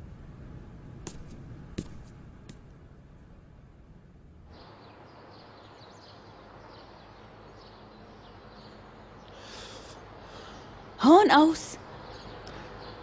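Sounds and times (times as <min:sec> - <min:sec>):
low ambient hiss: 0:00.0 - 0:13.0
small birds chirping: 0:04.5 - 0:13.0.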